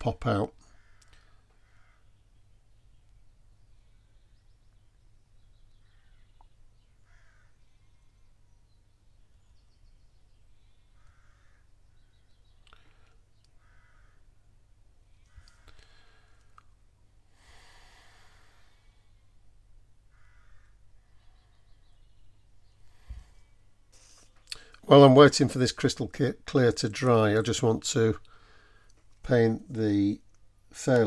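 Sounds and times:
faint bird calls: 0.5s - 24.7s
small clicks: 1.0s - 1.3s
soft breath: 15.3s - 19.5s, 22.7s - 24.8s, 28.3s - 29.0s.

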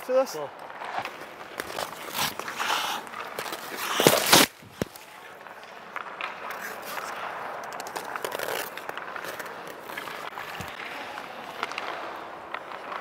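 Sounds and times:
sticks and pucks clacking on ice: 0.1s - 13.0s.

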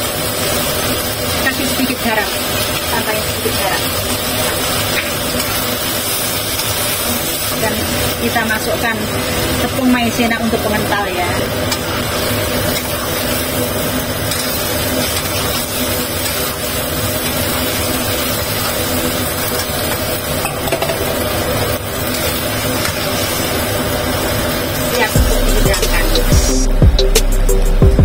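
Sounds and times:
food sizzling: 0.0s - 28.0s
metal spatula scraping wok: 10.7s - 23.9s.

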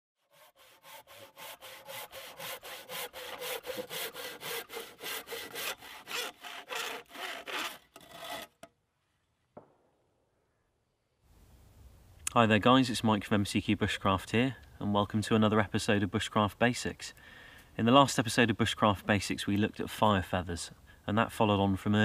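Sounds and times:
hand saw cutting wood: 0.2s - 8.7s.

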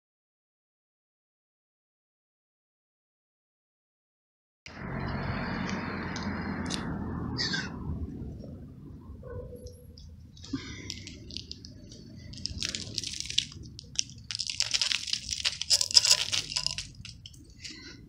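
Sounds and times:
kitten crunching food: 10.0s - 18.0s.

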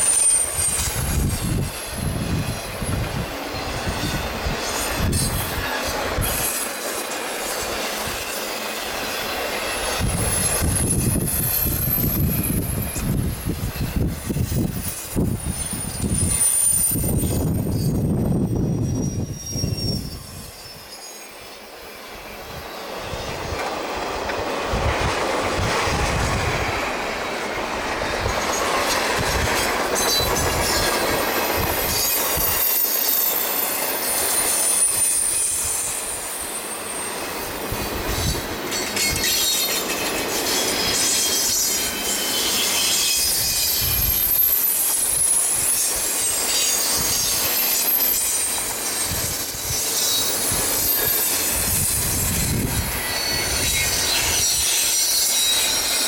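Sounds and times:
high flange squeal: 0.0s - 23.7s, 24.7s - 56.0s
freight train rumbling past: 0.0s - 56.0s
wheels clacking over rail joints: 38.0s - 56.0s.

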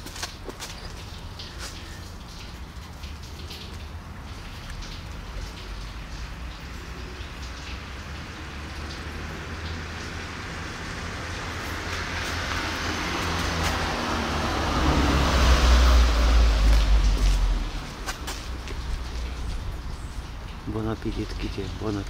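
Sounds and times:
vehicle passing with tyre hiss: 8.0s - 20.4s.

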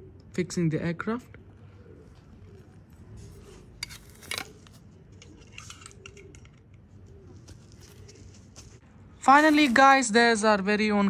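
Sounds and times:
plastic parts scraping: 3.2s - 8.8s
plastic parts clicking: 3.8s - 6.8s.

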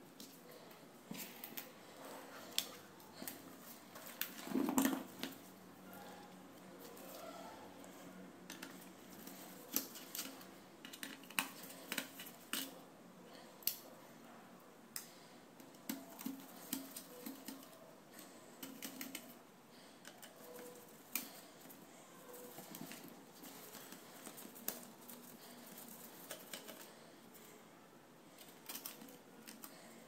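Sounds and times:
laptop parts clicking and snapping: 8.4s - 12.8s.

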